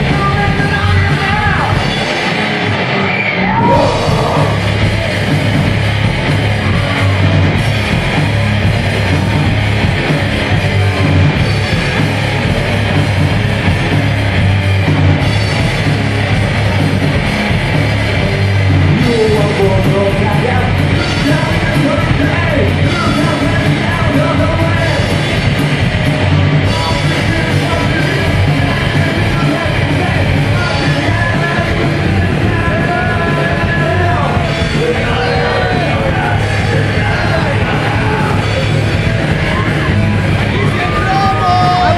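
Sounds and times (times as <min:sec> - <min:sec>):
bass guitar: 0:00.0 - 0:41.9
drums: 0:00.0 - 0:41.9
electric guitars: 0:00.0 - 0:41.9
person singing: 0:03.4 - 0:04.8, 0:40.6 - 0:41.9.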